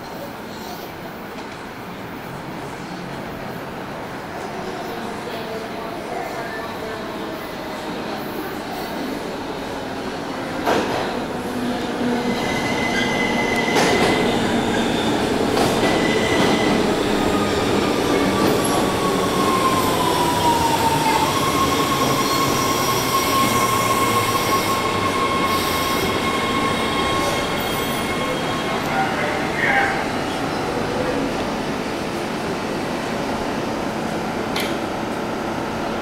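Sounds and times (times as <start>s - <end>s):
train wheels rumbling on rails: 8.4s - 36.0s
high squeal: 18.6s - 29.3s.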